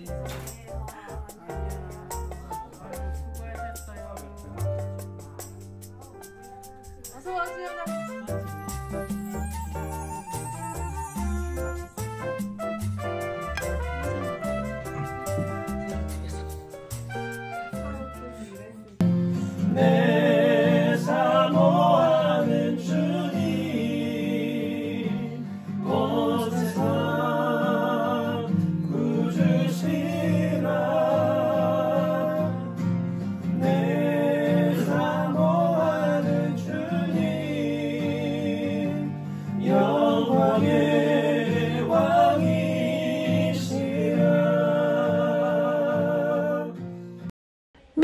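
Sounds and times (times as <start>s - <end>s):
acoustic guitar: 0.0s - 48.0s
voices singing worship song: 19.4s - 46.8s.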